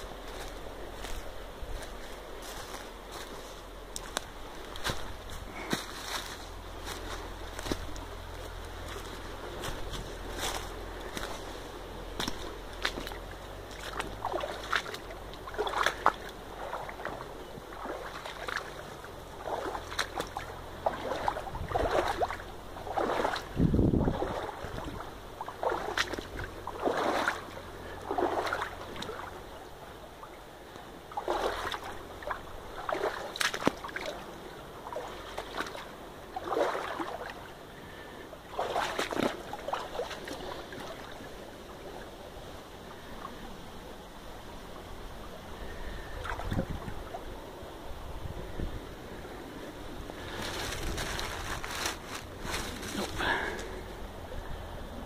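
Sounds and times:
stream rushing: 0:00.0 - 0:55.0
splashing steps in water: 0:12.1 - 0:18.8, 0:19.4 - 0:29.4, 0:31.1 - 0:34.2, 0:34.9 - 0:37.4, 0:38.5 - 0:41.2.

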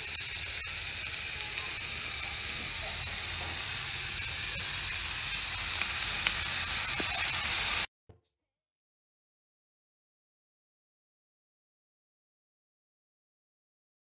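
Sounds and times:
onions sizzling in a frying pan: 0:00.0 - 0:07.9.

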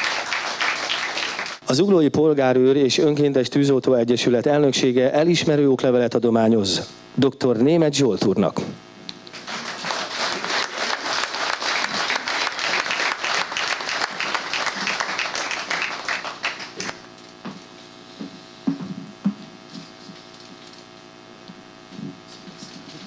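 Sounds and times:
audience applauding: 0:00.0 - 0:01.6, 0:09.3 - 0:17.1.

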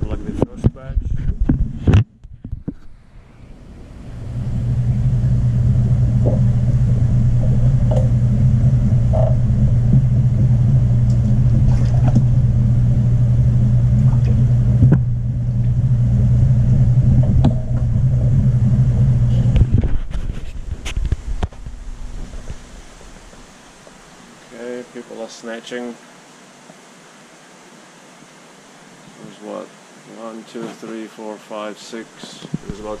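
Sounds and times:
underwater hum of water circulation: 0:01.2 - 0:24.8.

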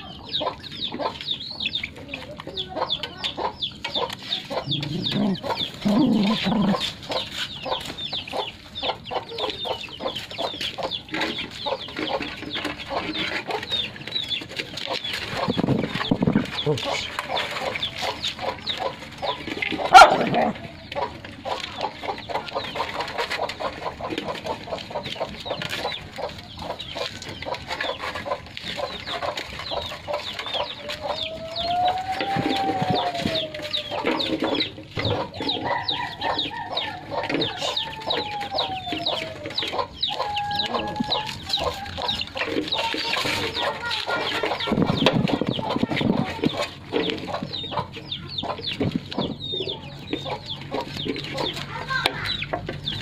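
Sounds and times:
chickens clucking: 0:00.0 - 0:53.0
puppies chewing and lapping: 0:00.0 - 0:53.0
rooster crowing: 0:31.2 - 0:34.0, 0:35.6 - 0:42.1.

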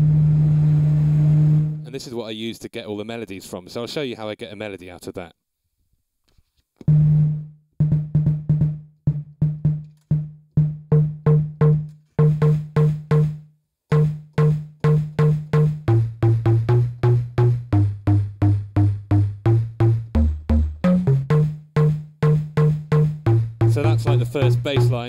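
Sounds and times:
plucked bass notes: 0:06.9 - 0:25.0.

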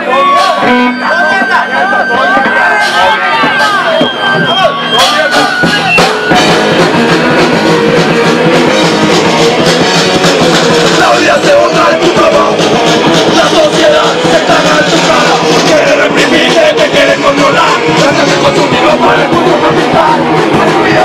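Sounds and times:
singer shouting into microphone: 0:00.0 - 0:10.0
distorted electric guitar: 0:00.0 - 0:21.0
person singing over band: 0:00.0 - 0:21.0
punk rock band playing: 0:00.0 - 0:21.0.

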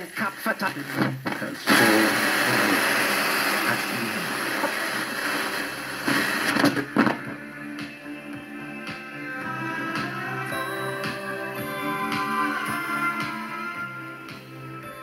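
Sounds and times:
radio stutters: 0:00.0 - 0:07.3
radio static hiss: 0:00.0 - 0:08.0.

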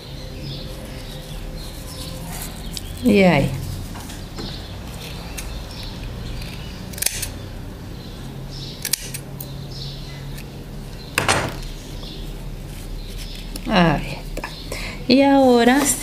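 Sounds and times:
scissors snipping yarn: 0:04.9 - 0:07.4.

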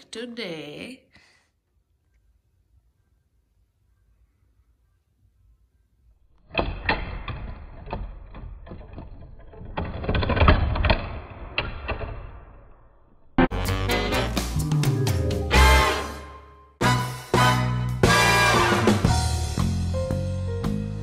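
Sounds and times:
plastic board rattling and clacking: 0:06.4 - 0:12.6.

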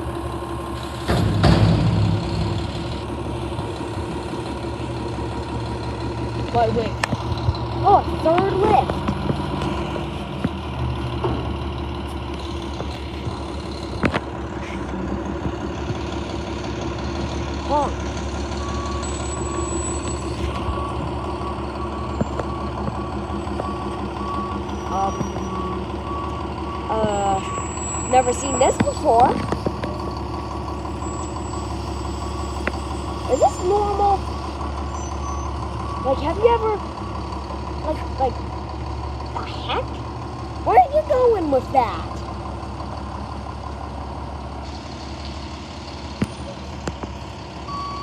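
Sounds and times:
garbage truck diesel engine: 0:00.0 - 0:48.0
reversing alarm beeping: 0:18.5 - 0:37.3, 0:47.7 - 0:48.0.

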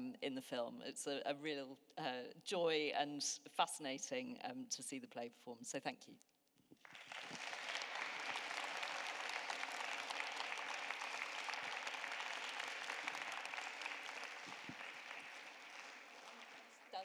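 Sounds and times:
audience applauding: 0:06.8 - 0:17.0.

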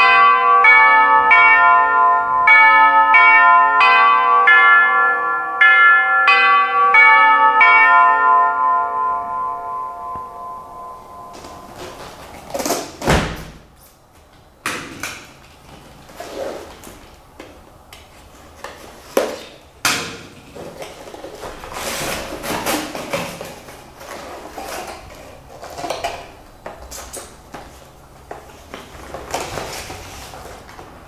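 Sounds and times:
cardboard flaps rustling: 0:11.4 - 0:31.0.

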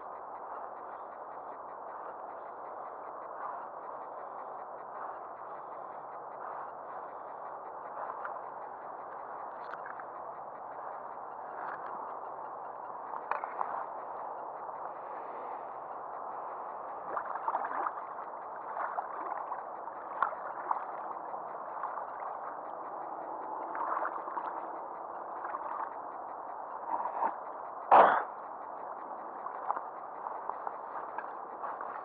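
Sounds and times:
small ticks: 0:00.0 - 0:32.0
lake water lapping: 0:17.0 - 0:21.2, 0:23.7 - 0:24.6.

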